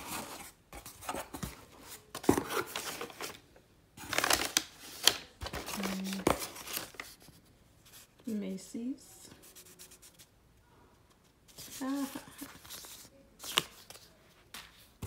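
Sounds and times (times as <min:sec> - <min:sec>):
packing paper rustling and crinkling: 0:00.0 - 0:03.4, 0:04.0 - 0:08.3, 0:11.5 - 0:15.0.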